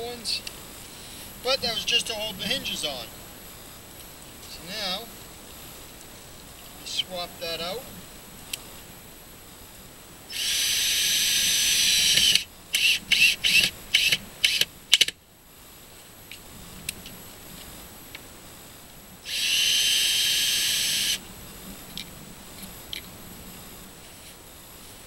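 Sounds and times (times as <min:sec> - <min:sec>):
cordless drill driving screws: 0:10.3 - 0:15.1, 0:19.3 - 0:21.2.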